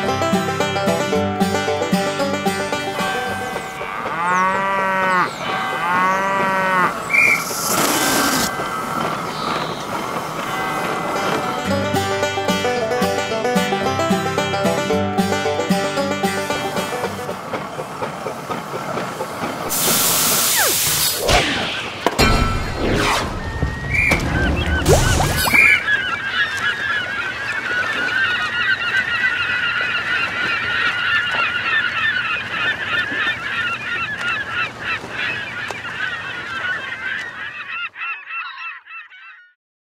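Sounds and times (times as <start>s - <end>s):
flock of birds calling: 2.9s - 11.7s, 23.9s - 39.6s
loud hiss: 19.7s - 21.3s.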